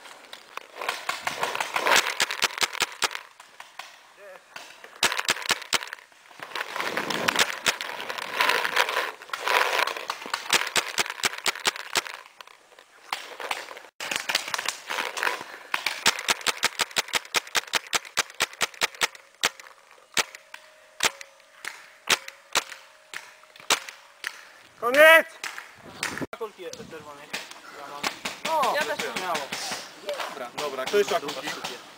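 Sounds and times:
paintball markers firing: 0.8 - 6.0, 9.3 - 12.3, 13.1 - 24.5, 27.2 - 31.9.

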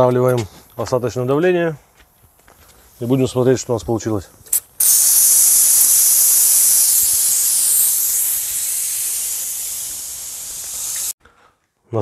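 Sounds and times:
steam hissing from pressure cooker: 4.8 - 11.2.

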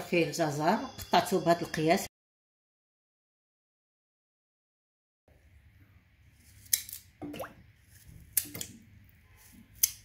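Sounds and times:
knife cutting carrot: 6.4 - 10.0.

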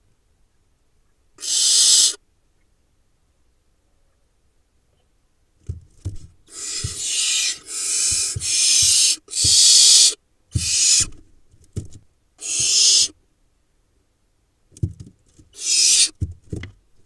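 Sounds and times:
owlets hissing screeches: 1.4 - 2.2, 6.5 - 11.1, 12.4 - 13.1, 15.6 - 16.2
dull thumps of owlets scrambling: 5.6 - 13.0, 14.7 - 17.0.

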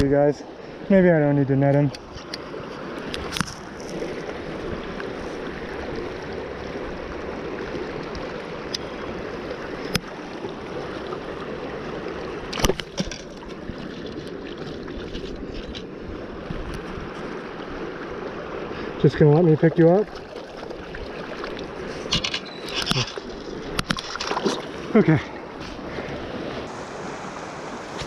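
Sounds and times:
river rushing over rocks: 22.8 - 28.0.

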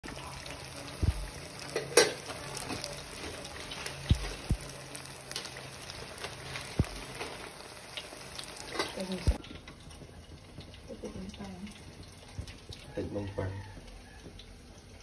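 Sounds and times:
meat deep-frying in oil: 0.0 - 15.0
oil popping: 0.1 - 15.0
dull low thumps: 1.0 - 1.3, 4.1 - 4.7, 6.8 - 7.0.

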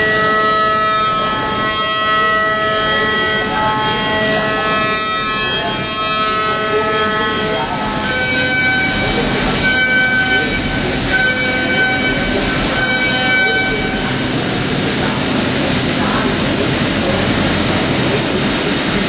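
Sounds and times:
milling machine whine: 0.0 - 19.0.

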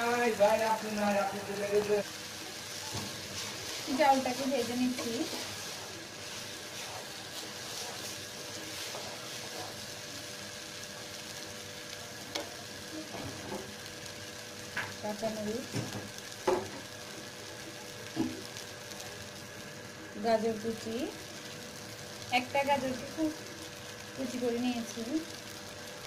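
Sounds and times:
rice sizzling in oil: 0.0 - 26.0
stirring scraping a pan: 1.9 - 11.1.

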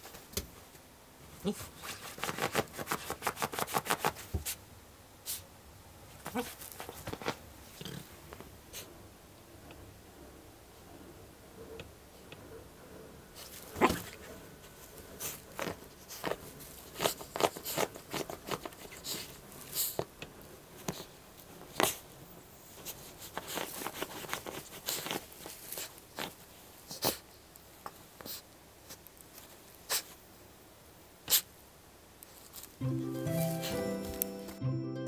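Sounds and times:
puppy claws scratching fabric: 1.4 - 4.6, 6.1 - 8.9, 13.4 - 20.1, 20.8 - 30.2.

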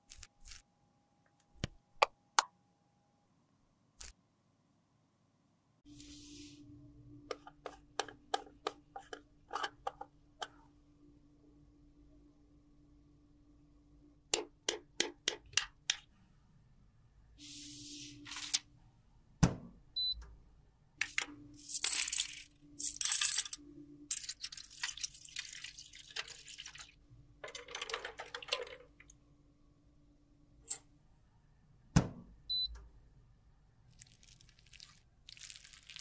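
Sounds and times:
plastic cases clinking in metal tray: 27.4 - 28.9.

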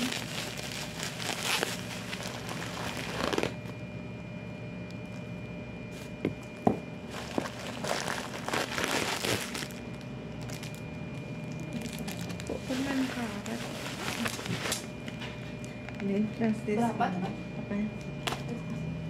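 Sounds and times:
plastic bag crinkling: 0.0 - 3.6, 7.1 - 14.9.

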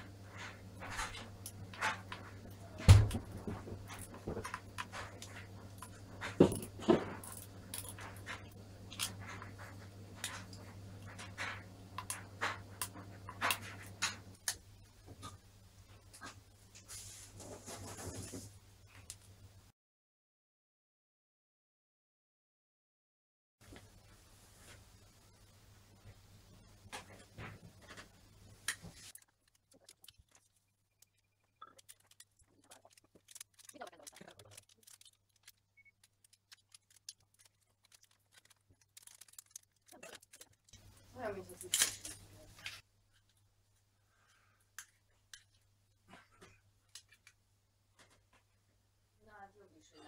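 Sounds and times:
screwdriver ticking and scraping: 29.0 - 40.8.

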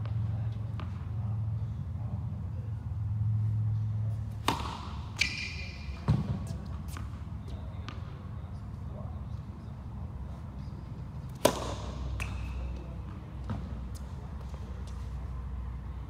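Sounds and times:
tennis balls bouncing: 4.3 - 8.3, 11.2 - 15.0
shoe squeak: 5.1 - 7.0.

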